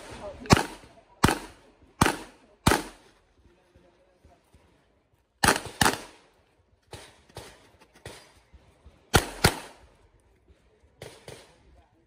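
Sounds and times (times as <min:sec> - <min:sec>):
handgun shots: 0:00.4 - 0:03.0, 0:09.2 - 0:09.8.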